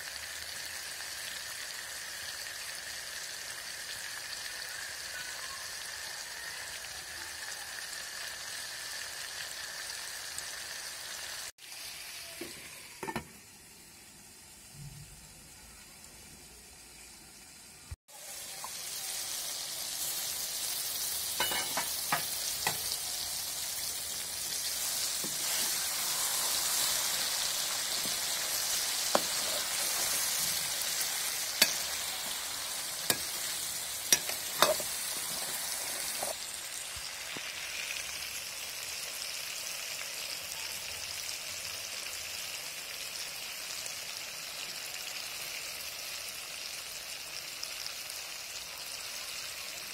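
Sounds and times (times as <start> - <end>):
food sizzling in oil: 0.0 - 49.9
metal utensils clinking on pot: 21.4 - 22.9, 34.1 - 36.4.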